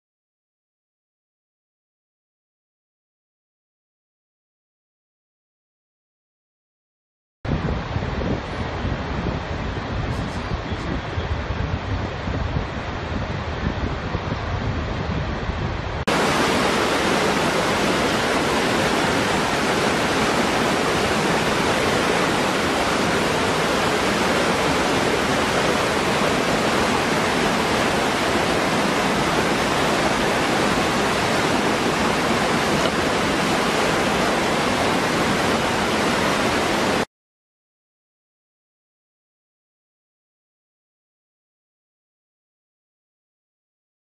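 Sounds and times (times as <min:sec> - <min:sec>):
waterfall rushing: 0:16.1 - 0:37.1.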